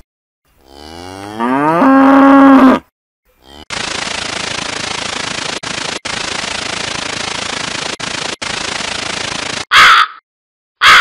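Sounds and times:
rapid buzzing rattle: 0:03.6 - 0:09.7
crow cawing: 0:09.7 - 0:10.2, 0:10.8 - 0:11.0.

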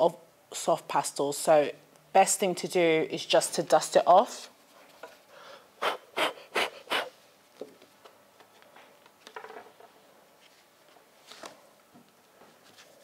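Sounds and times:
paper rustling: 0:10.4 - 0:13.0.

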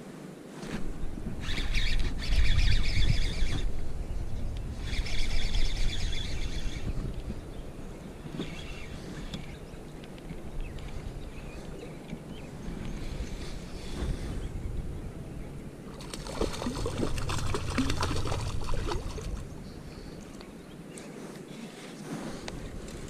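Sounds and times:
wind rumble on microphone: 0:00.0 - 0:23.0
fishing reel whirring: 0:01.4 - 0:03.6.

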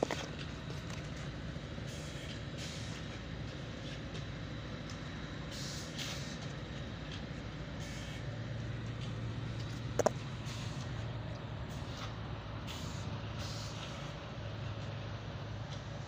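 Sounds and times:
machine humming and rumbling: 0:00.0 - 0:05.5, 0:06.4 - 0:12.6.

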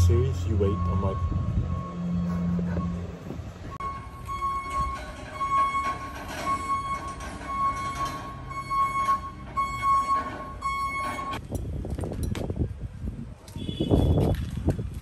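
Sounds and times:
forklift warning beeps: 0:00.0 - 0:11.4.

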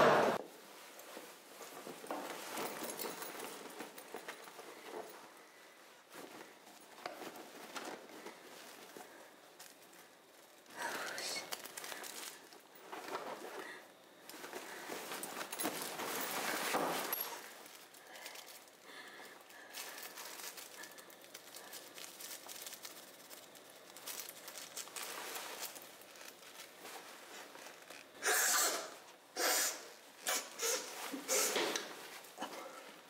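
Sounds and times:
faint rustling and handling: 0:00.4 - 0:33.0
person sniffing hard: 0:28.2 - 0:31.8.

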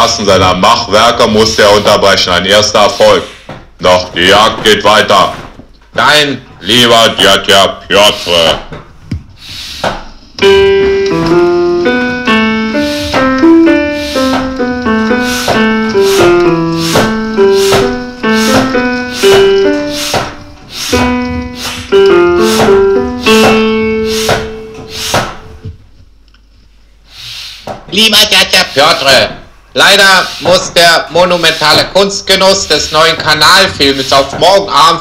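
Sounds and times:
piano-like keyboard music: 0:10.4 - 0:25.8.

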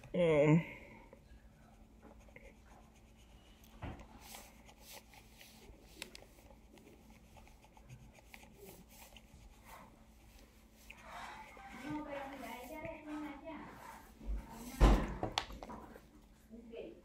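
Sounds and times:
pen scratching on paper: 0:01.6 - 0:13.9.

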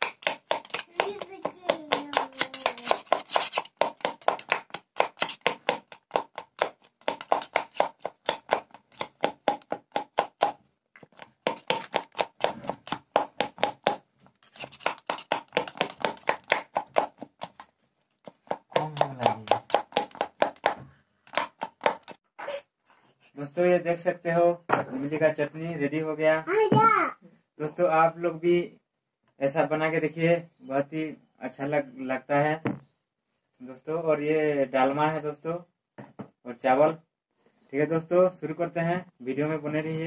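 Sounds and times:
rhythmic knocking of kitchen tool: 0:00.0 - 0:10.5, 0:11.4 - 0:17.6, 0:18.2 - 0:22.2.

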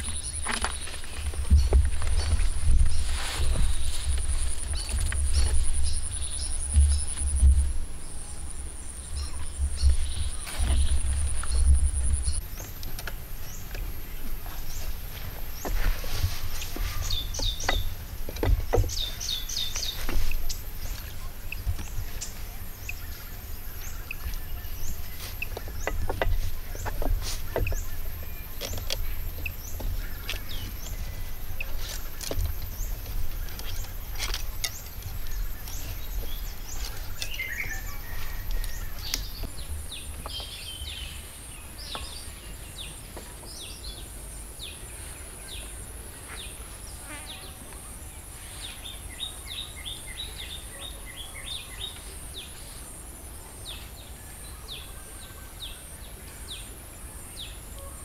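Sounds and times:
wooden poles knocking: 0:00.0 - 0:07.9, 0:09.6 - 0:22.7, 0:23.4 - 0:40.5
birds chirping: 0:00.0 - 0:58.0.

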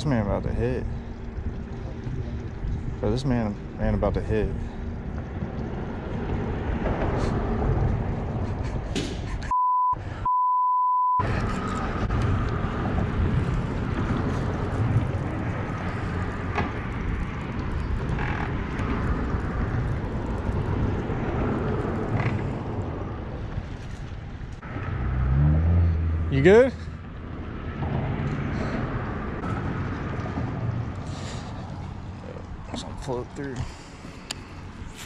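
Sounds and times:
censor bleep: 0:09.5 - 0:11.2
wind noise on microphone: 0:11.2 - 0:24.6.

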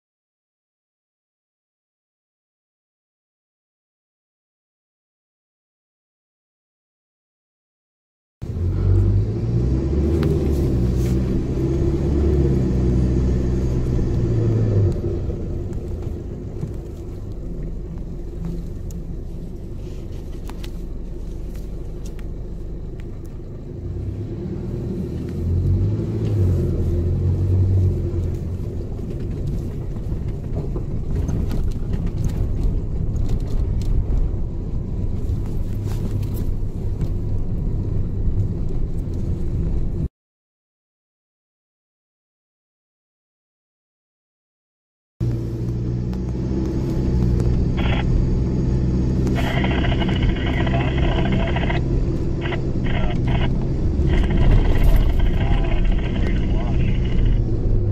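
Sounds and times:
vehicle engine and tyres droning: 0:08.4 - 0:40.1, 0:45.2 - 0:57.9
knocks and rattles over bumps: 0:28.3 - 0:34.5.

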